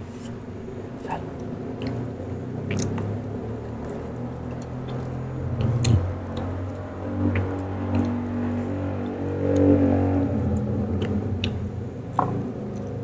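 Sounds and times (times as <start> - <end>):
low steady drone: 0.0 - 13.0
wet chewing mouth sounds: 1.0 - 3.2, 3.8 - 11.7.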